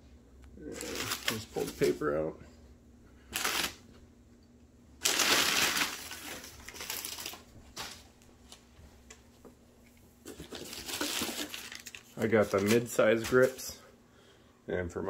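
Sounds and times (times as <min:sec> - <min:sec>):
packing paper rustling: 0:00.6 - 0:02.0, 0:03.3 - 0:03.8, 0:05.0 - 0:08.7, 0:10.3 - 0:13.7.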